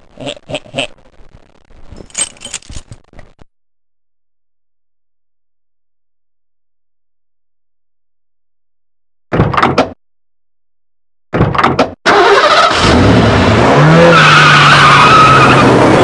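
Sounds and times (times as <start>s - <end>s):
car engine revving: 12.1s - 16.0s.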